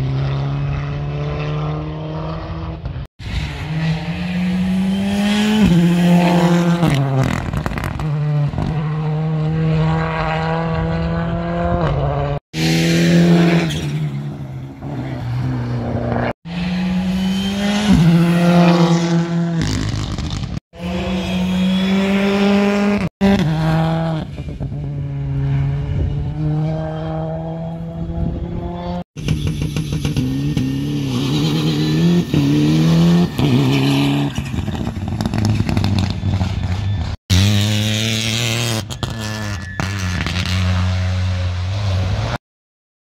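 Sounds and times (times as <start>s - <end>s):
rally car engines revving past: 0.0s - 42.4s.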